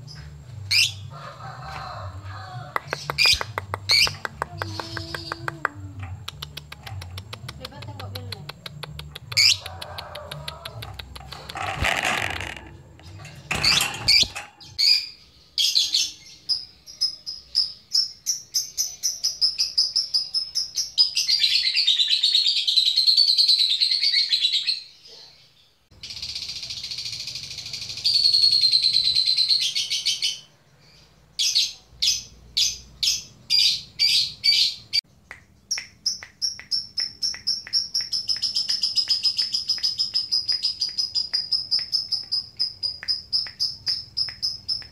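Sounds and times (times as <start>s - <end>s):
lovebird chirping and trilling: 2.9s - 5.4s, 9.3s - 9.7s.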